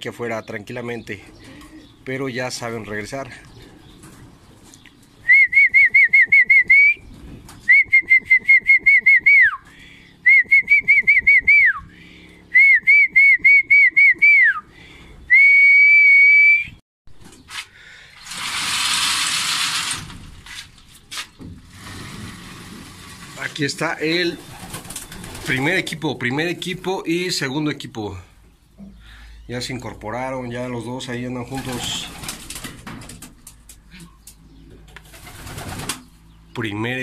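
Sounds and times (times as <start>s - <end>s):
person whistling warbling calls: 5.2s - 7.0s, 7.7s - 9.6s, 10.2s - 11.9s, 12.5s - 14.7s, 15.3s - 16.8s.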